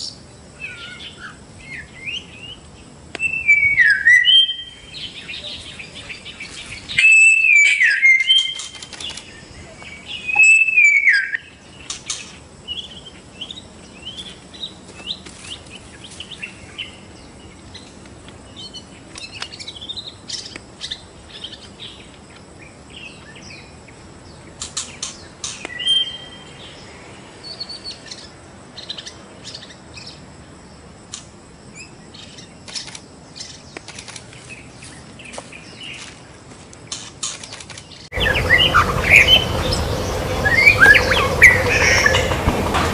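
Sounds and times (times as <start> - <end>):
bird singing whistled phrases: 3.2 - 5.7, 6.9 - 8.8, 10.0 - 11.5, 25.7 - 26.5, 38.2 - 42.4
bird chattering with clicks: 32.6 - 34.4, 36.9 - 39.8.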